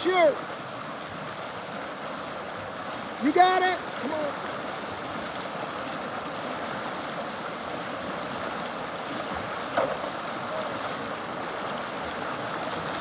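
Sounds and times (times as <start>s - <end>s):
whitewater rushing: 0.0s - 13.0s.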